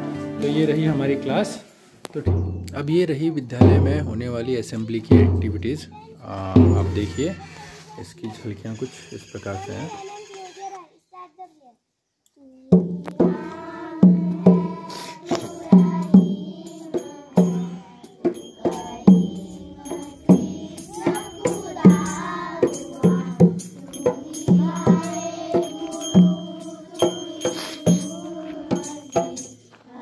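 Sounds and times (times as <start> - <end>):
drum beating: 2.2 - 7.4, 12.8 - 29.7
children singing in chorus: 12.7 - 30.0
small cymbals jingling: 14.6 - 29.9.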